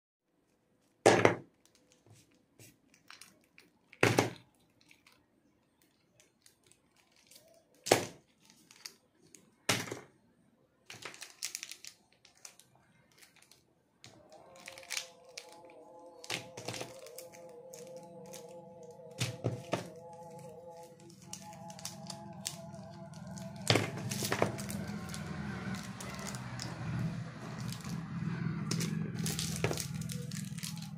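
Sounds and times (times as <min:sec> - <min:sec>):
wrapper crinkling: 0:00.7 - 0:09.7, 0:10.9 - 0:30.9
snack packets thunking on table: 0:04.0 - 0:04.4, 0:16.2 - 0:17.2, 0:19.1 - 0:20.0, 0:23.4 - 0:26.7, 0:28.7 - 0:30.9
background music with held notes: 0:14.1 - 0:30.9.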